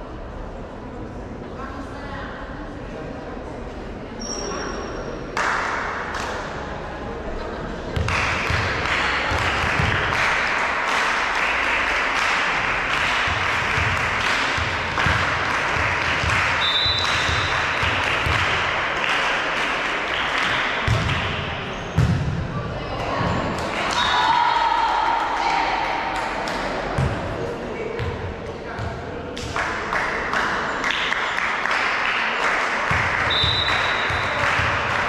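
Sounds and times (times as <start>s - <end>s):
volleyball being hit and bouncing: 7.9s - 10.2s, 13.0s - 18.7s, 20.4s - 22.4s, 26.9s - 27.4s, 32.9s - 35.0s.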